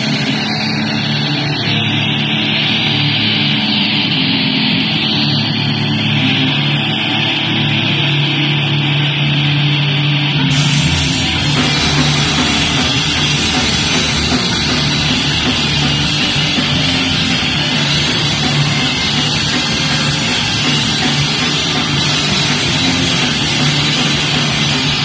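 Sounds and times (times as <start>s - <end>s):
punk band playing live: 0.0s - 9.3s, 10.5s - 25.0s.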